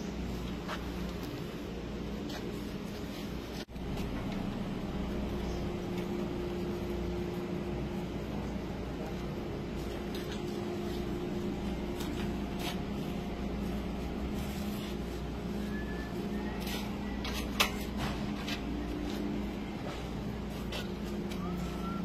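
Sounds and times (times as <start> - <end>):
low machinery hum: 0.0 - 22.0.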